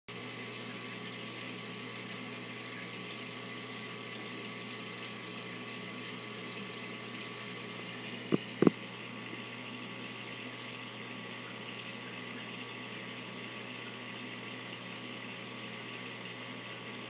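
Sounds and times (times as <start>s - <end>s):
aquarium pump hum: 0.1s - 17.0s
air bubbles hissing: 7.9s - 8.9s.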